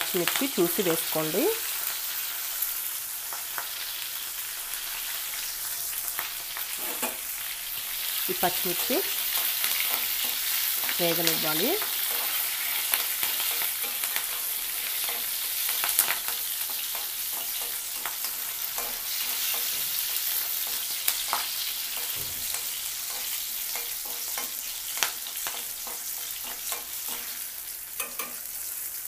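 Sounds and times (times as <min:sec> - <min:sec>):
chillies sizzling in hot oil: 0:00.0 - 0:29.0
spatula clicking against pan: 0:12.0 - 0:27.3, 0:28.0 - 0:28.5.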